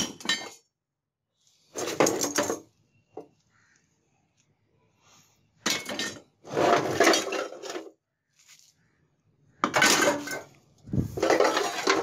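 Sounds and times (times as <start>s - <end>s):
scrap metal clattering and scraping: 5.7s - 7.9s, 9.6s - 12.0s.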